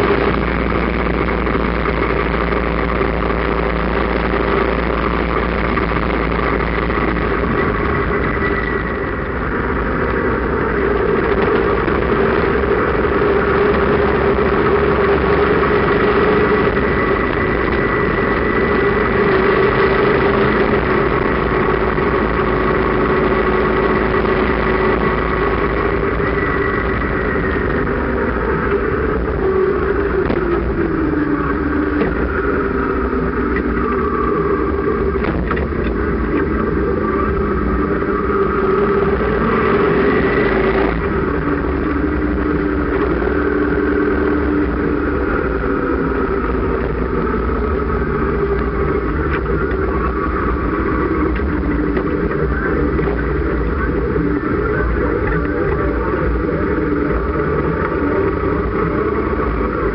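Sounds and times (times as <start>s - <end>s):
motorcycle engine running: 0.0s - 59.9s
wind and road noise: 0.0s - 59.9s.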